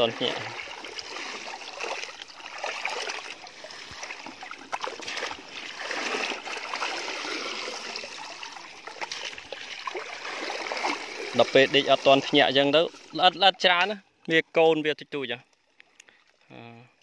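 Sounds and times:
water draining through mesh: 0.0s - 13.9s
shallow water splashing: 0.0s - 14.2s.

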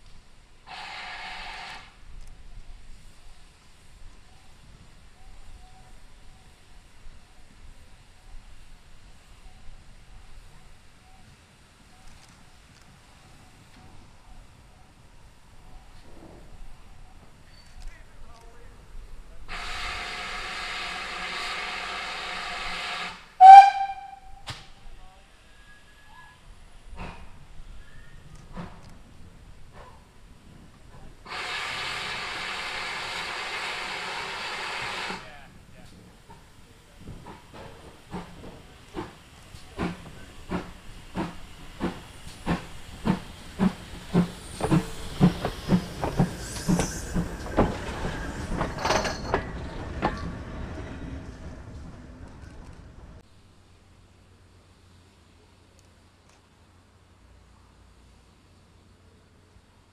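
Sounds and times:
steam hissing: 0.6s - 2.0s, 19.4s - 23.8s, 31.2s - 50.0s
steam whistle blowing: 0.7s - 1.9s, 19.5s - 24.5s, 31.3s - 35.2s
steam locomotive exhaust beats: 19.5s - 24.8s, 30.7s - 53.2s
loud short tone: 23.4s - 24.5s
click: 55.8s - 56.4s.

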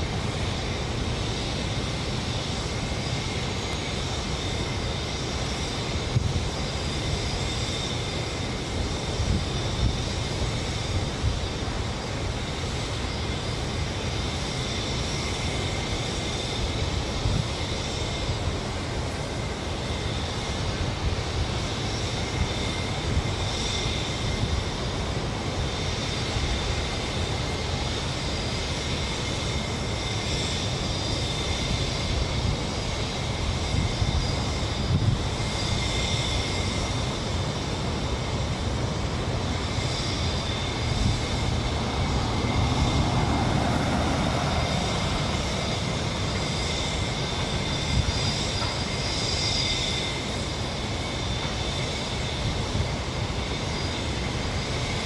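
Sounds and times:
distant construction machinery rumble: 40.5s - 49.0s.

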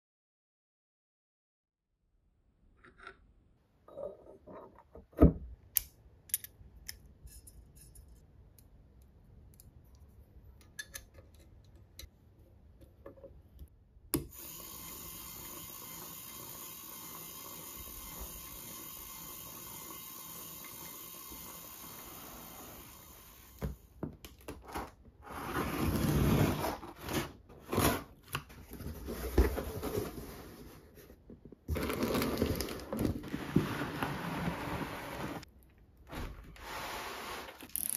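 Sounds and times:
metal parts clicking and clinking: 5.8s - 8.3s, 37.6s - 37.9s
cardboard and packaging rustling: 24.6s - 35.4s.

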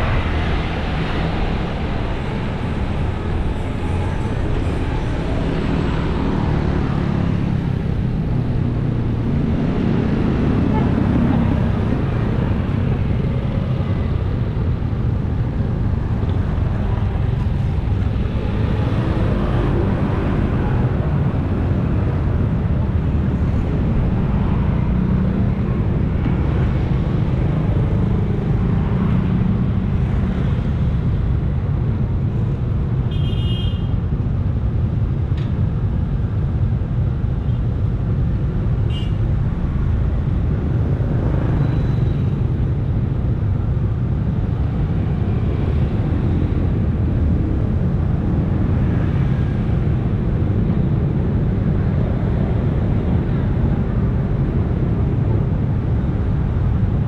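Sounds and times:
motorcycle engines idling and passing: 0.0s - 32.9s.

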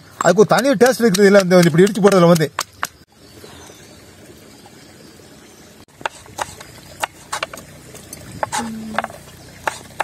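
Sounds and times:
stone pestle pounding in mortar: 0.2s - 3.0s.

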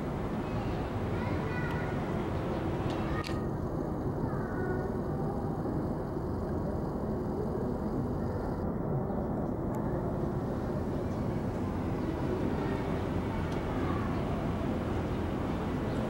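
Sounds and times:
city traffic rumble: 0.0s - 16.0s.

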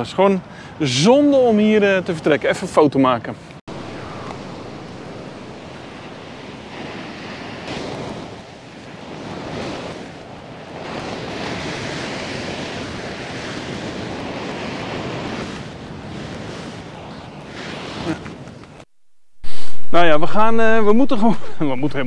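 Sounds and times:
ocean surf breaking on rocks: 3.7s - 18.8s
wind buffeting microphone: 3.7s - 18.8s.

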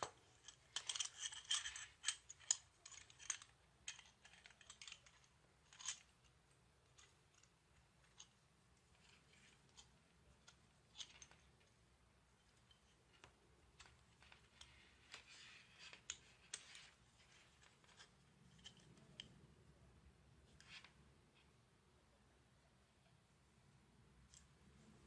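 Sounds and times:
metal bracket clicking on plastic: 0.0s - 6.1s.

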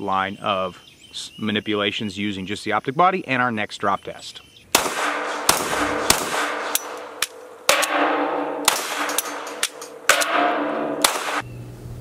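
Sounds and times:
pistol shots ringing: 4.7s - 11.4s.

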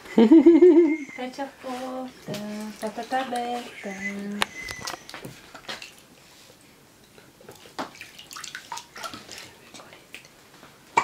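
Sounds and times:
bathwater splashing: 1.8s - 6.3s, 7.3s - 10.3s.

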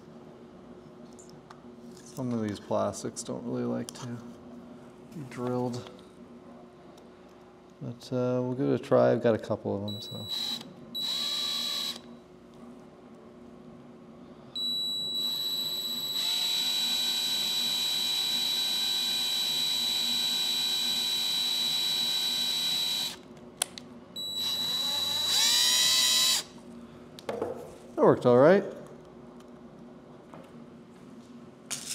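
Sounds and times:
cordless drill motor whine: 9.9s - 12.1s, 14.6s - 23.2s, 24.2s - 26.5s.

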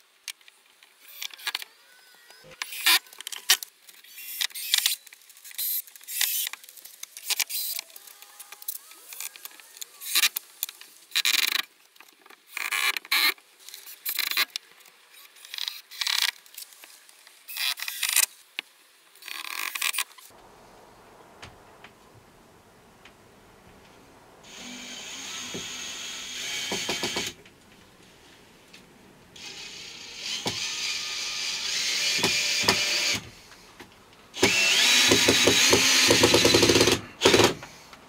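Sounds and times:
drill driving screws into wood: 4.1s - 6.5s, 24.5s - 27.4s, 29.4s - 33.4s, 34.4s - 37.8s.

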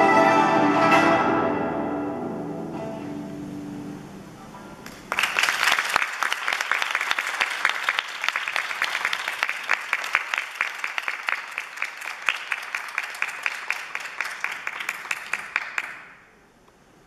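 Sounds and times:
zither ensemble chord ringing: 0.0s - 4.8s
audience applause: 4.9s - 16.2s.

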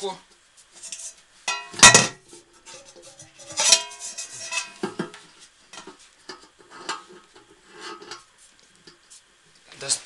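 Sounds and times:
metal tank clanking and ringing: 1.5s - 2.2s.

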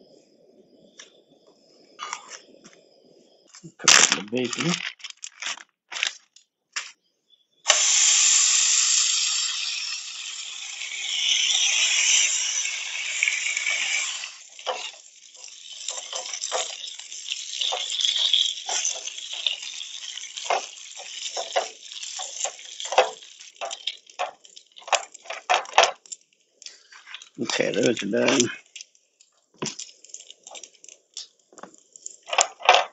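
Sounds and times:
bacon sizzling in a pan: 7.7s - 32.9s.

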